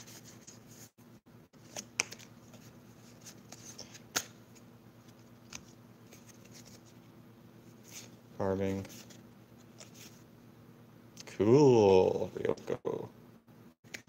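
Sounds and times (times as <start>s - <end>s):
cards sliding and flicking: 1.6s - 7.0s, 7.8s - 8.2s, 8.8s - 10.2s
card snaps: 3.9s - 4.4s.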